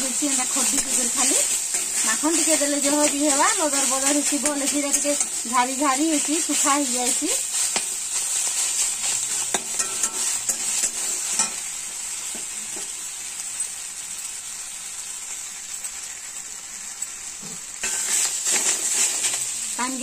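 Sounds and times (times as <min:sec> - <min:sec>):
greens sizzling in oil: 0:00.0 - 0:20.0
metal spatula scraping pan: 0:00.5 - 0:11.6, 0:17.8 - 0:19.5.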